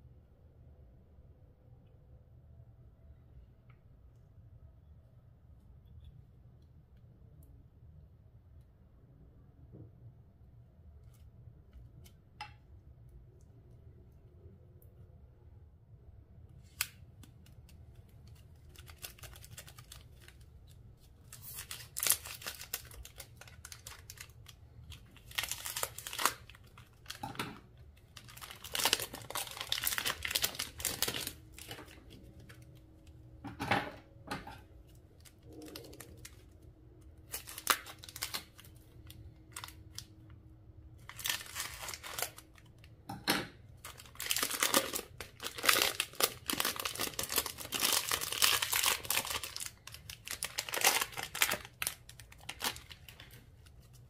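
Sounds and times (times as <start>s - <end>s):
slime crackling and popping: 43.9s - 53.4s.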